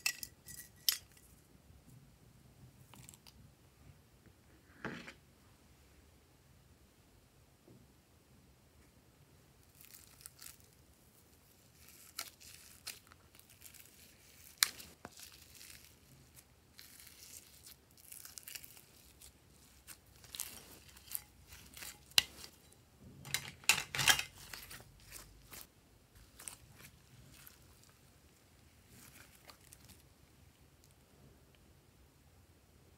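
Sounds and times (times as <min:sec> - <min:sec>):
sticky slime crackling and tearing: 0:09.6 - 0:22.5, 0:24.4 - 0:28.1, 0:28.8 - 0:30.0.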